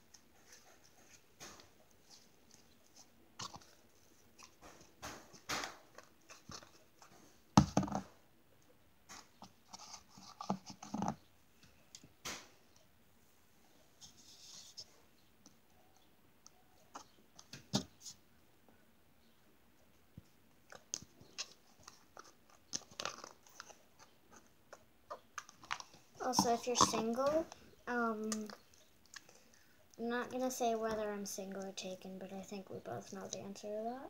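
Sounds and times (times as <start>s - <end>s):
slime squishing by hand: 20.6s - 29.3s.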